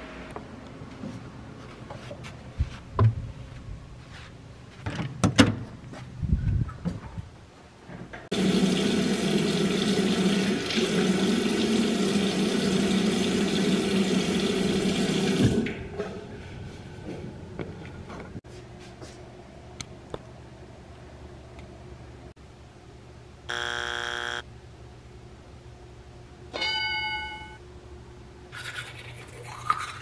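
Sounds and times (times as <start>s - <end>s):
tap water running into sink: 8.3s - 15.7s.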